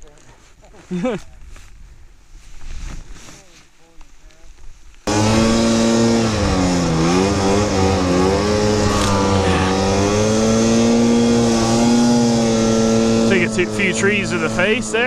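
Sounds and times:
snowmobile engine running: 5.1s - 15.0s.

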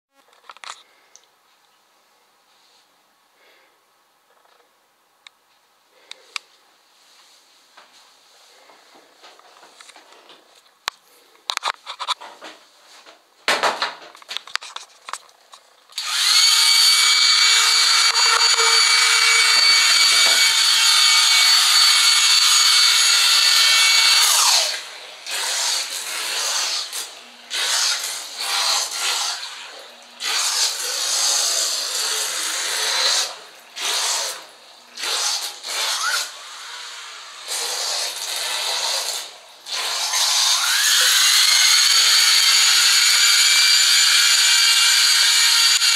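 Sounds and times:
hair dryer whine: 16.0s - 27.2s.

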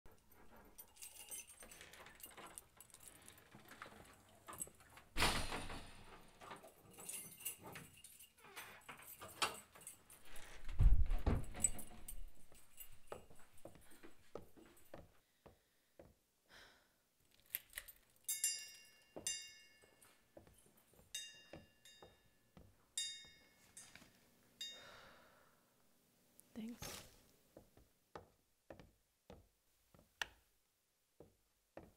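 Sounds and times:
keys jangling: 0.1s - 15.0s, 17.3s - 19.4s
soft knocks and taps: 27.6s - 30.4s.

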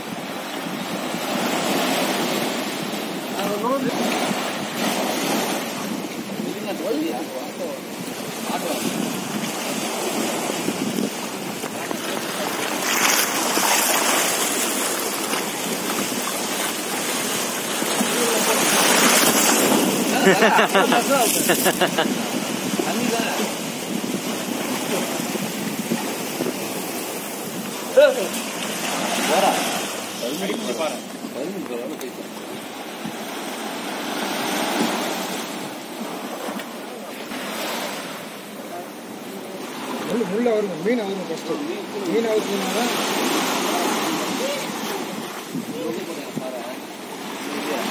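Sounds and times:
wind buffeting microphone: 0.0s - 31.6s, 42.8s - 46.7s
small waves washing onto sand: 0.0s - 47.9s
surf splashing against iron posts: 0.0s - 47.9s.

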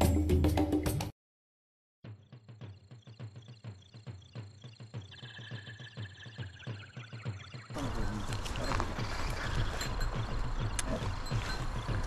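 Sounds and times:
background music: 0.0s - 1.1s
music with steady beat: 2.1s - 8.1s.

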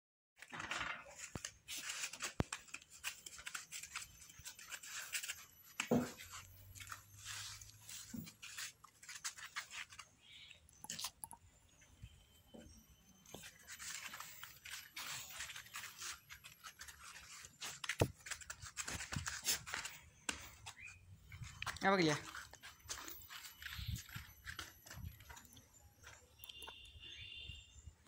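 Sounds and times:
goats rustling on plastic tarp: 1.0s - 10.4s, 13.3s - 26.2s
goats crunching grain: 13.3s - 26.9s.

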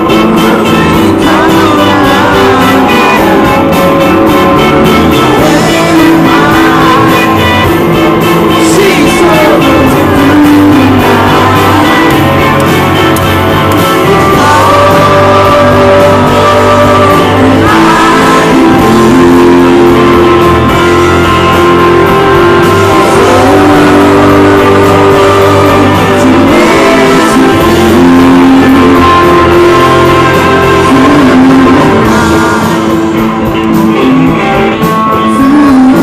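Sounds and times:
live rock band: 0.0s - 36.0s
man singing lead vocal: 0.0s - 36.0s.

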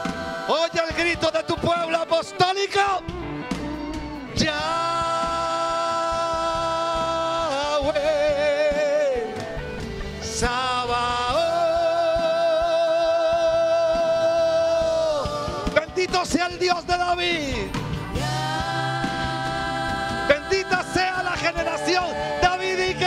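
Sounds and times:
worship band backing music: 0.0s - 23.0s
man singing with vibrato: 4.4s - 9.4s, 10.3s - 15.9s, 20.2s - 23.0s.

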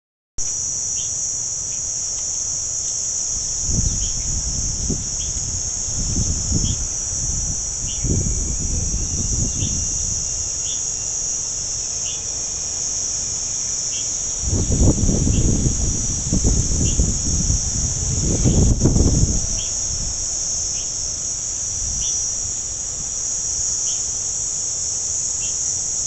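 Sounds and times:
high-pitched insect chorus: 0.4s - 26.0s
short insect chirps: 0.4s - 26.0s.

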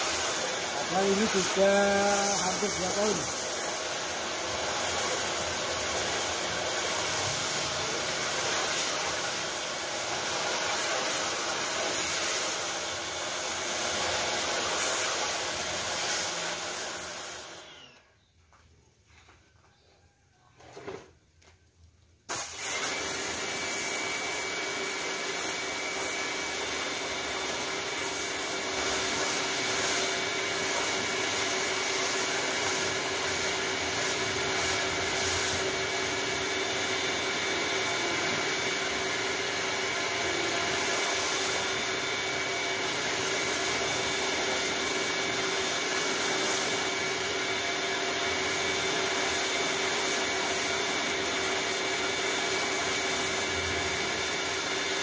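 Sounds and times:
water jet hissing: 0.0s - 17.7s, 27.2s - 39.0s
pressure washer motor hum: 0.0s - 18.0s, 22.3s - 55.0s.

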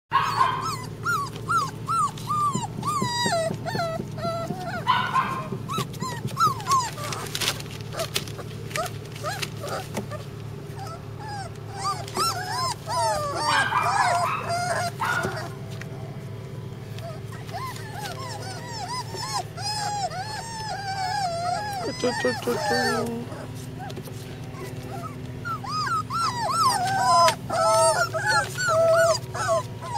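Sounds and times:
puppies harsh cries: 0.1s - 29.9s
puppies whimpering and squeaking: 0.1s - 29.9s.

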